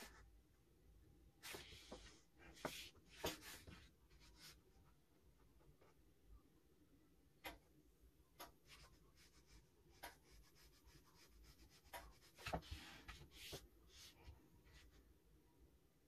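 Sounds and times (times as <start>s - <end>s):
brush on paper: 1.4s - 4.6s, 8.6s - 15.0s.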